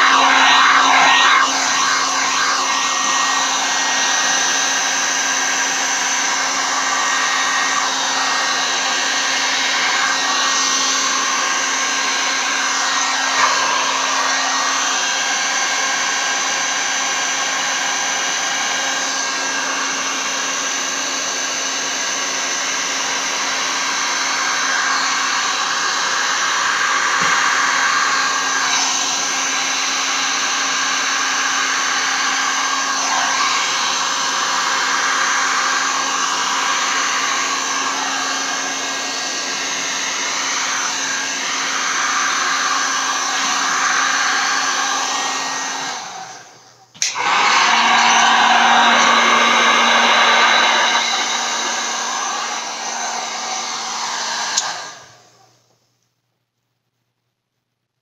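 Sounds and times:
heat gun fan humming: 46.9 - 54.8.

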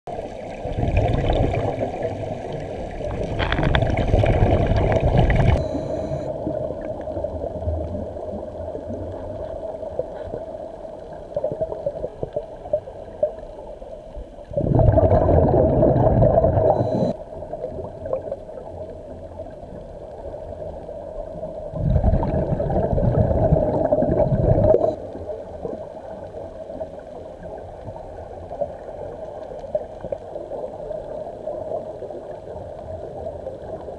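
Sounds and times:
scuba regulator bubbles gurgling: 0.1 - 33.9
steady underwater hum: 0.1 - 33.9.

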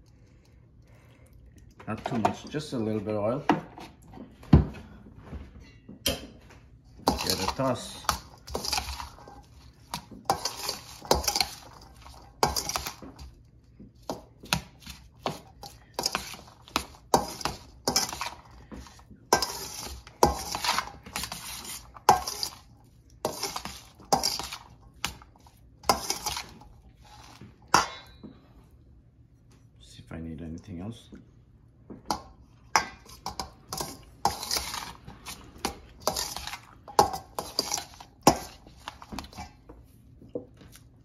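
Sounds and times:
utensil scraping a bowl: 7.0 - 13.3, 14.0 - 27.8, 32.8 - 39.6.

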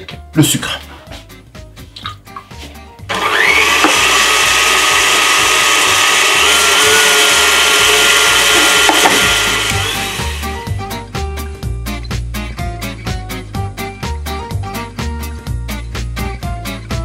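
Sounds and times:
stand mixer motor whining: 3.1 - 10.8.

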